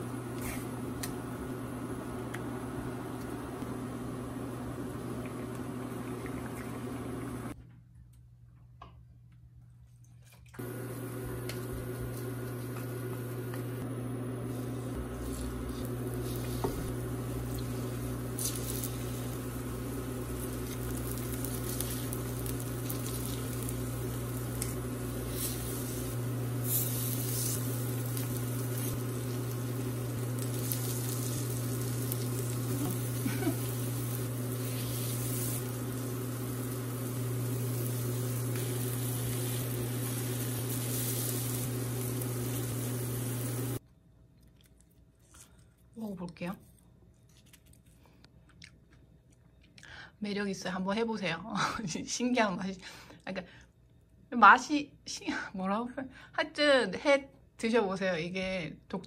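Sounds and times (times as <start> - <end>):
low hum: 10.6 - 43.8
batter frying in oil: 15.0 - 43.8.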